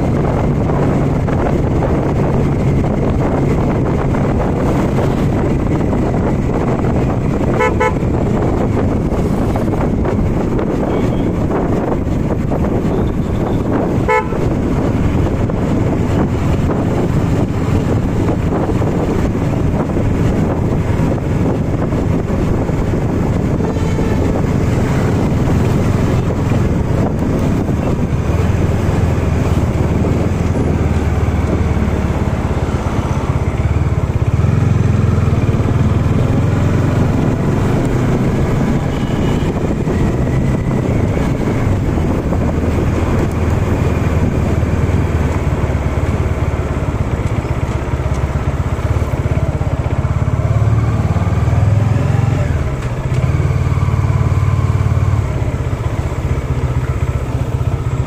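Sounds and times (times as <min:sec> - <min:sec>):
motorcycle engine running: 0:00.0 - 0:58.0
wind rushing on microphone: 0:00.0 - 0:58.0
horn toot: 0:07.4 - 0:08.3, 0:12.9 - 0:14.6, 0:23.5 - 0:24.6.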